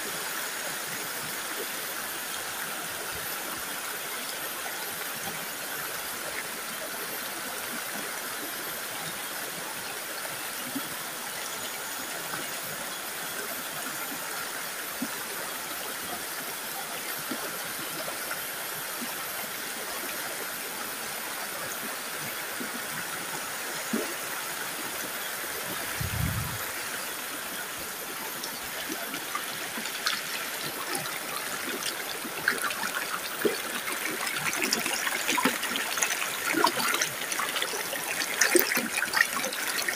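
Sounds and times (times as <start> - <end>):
stream rushing over boulders: 20.9 - 39.9.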